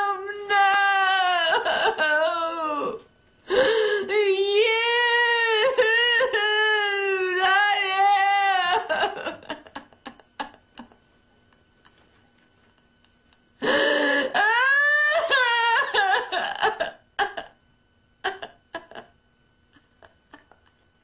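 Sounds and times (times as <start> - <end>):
woman wailing: 0.0 - 3.0, 3.6 - 10.6, 13.6 - 17.5
woman sobbing: 0.0 - 11.0, 13.6 - 17.6, 18.2 - 20.8.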